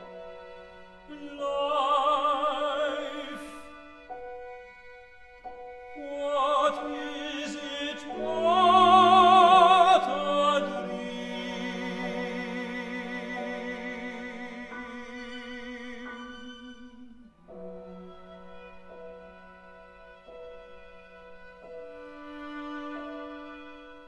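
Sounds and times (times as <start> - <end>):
orchestral accompaniment: 0.0 - 24.0
operatic singing: 1.0 - 3.9, 6.0 - 18.6.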